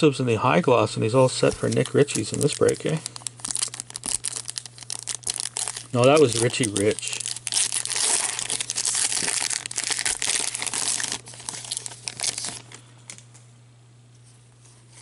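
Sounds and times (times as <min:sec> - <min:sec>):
foil wrapper tearing and crinkling: 0:01.4 - 0:12.8.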